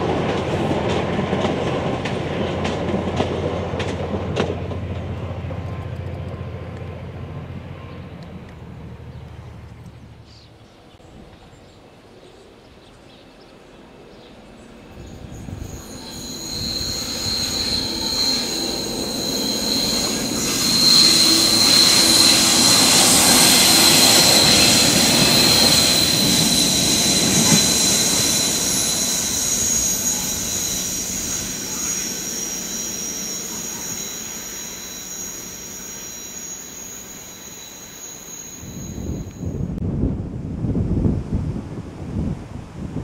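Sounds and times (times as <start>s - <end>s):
diesel train passing: 0.0s - 40.9s
train wheel squeal: 14.8s - 39.8s.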